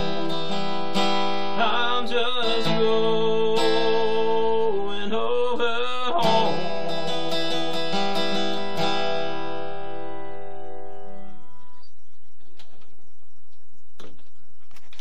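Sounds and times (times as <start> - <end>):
acoustic guitar chord ringing: 0.0 - 11.9.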